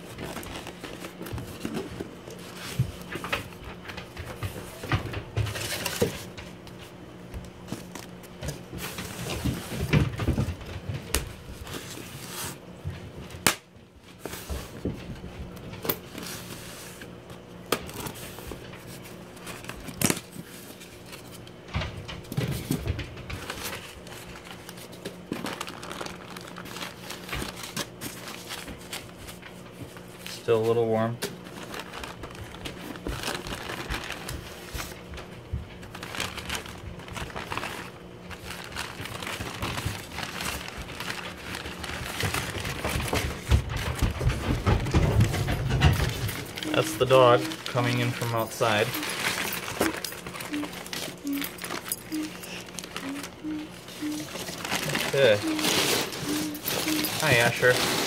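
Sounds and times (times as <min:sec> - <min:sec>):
steady low hum: 0:00.0 - 0:58.0
cardboard box rustling and scraping: 0:53.9 - 0:58.0.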